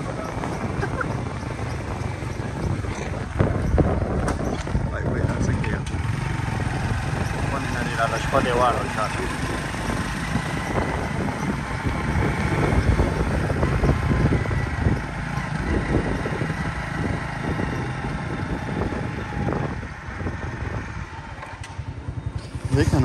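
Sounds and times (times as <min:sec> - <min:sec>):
vehicle engine and road rumble: 0:00.0 - 0:23.0.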